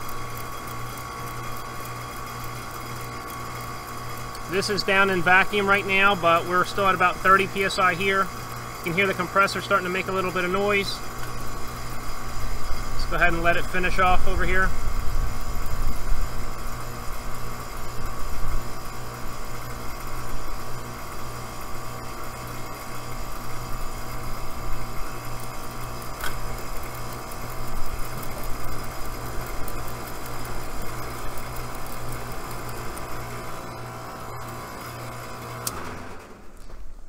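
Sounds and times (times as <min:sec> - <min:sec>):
air conditioner unit humming: 0:00.0 - 0:37.0
sharp metallic click: 0:26.2 - 0:26.4.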